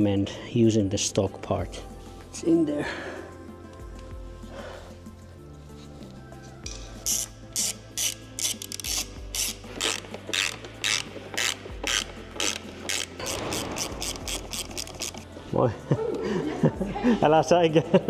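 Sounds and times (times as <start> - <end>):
ratchet wrench clicking: 6.7 - 15.2.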